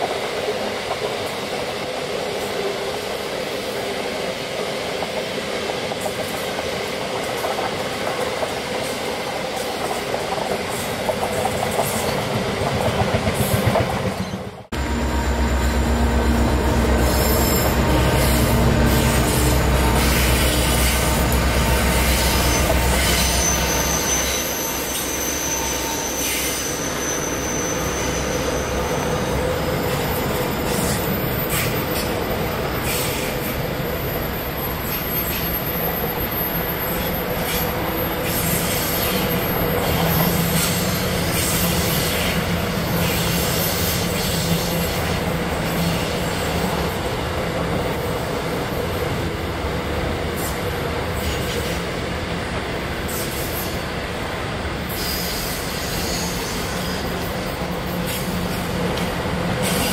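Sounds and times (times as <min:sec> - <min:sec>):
train rumbling past: 0:00.0 - 0:59.9
high wheel squeal: 0:14.2 - 0:46.7, 0:54.9 - 0:58.5.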